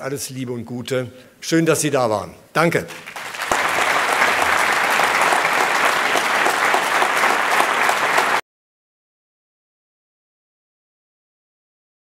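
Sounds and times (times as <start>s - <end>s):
audience applauding: 2.9s - 8.4s.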